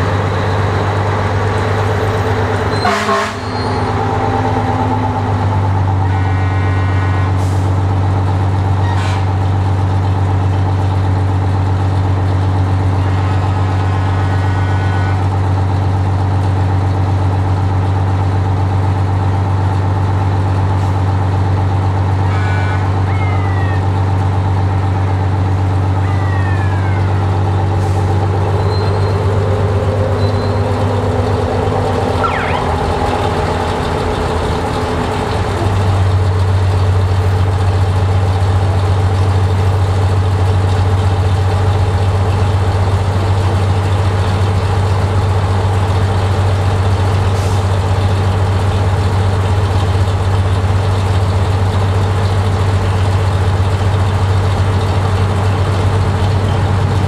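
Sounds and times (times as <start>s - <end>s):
fire truck engines idling: 0.0s - 57.0s
short falling squeals: 2.7s - 3.9s, 22.2s - 23.9s, 25.8s - 31.0s, 32.0s - 32.9s.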